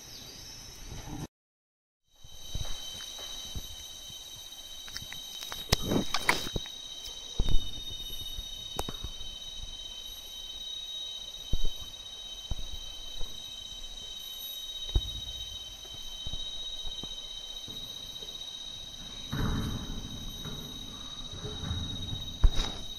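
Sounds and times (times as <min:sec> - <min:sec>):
insects droning: 0:00.0 - 0:01.3, 0:02.1 - 0:22.9
brief rustle: 0:04.8 - 0:07.2
knocks and thumps: 0:14.9 - 0:22.9.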